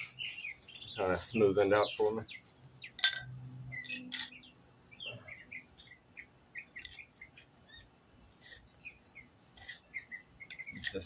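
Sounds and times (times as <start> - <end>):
songbird chirping: 0.0 - 11.0
wooden board scraping concrete: 9.5 - 11.0.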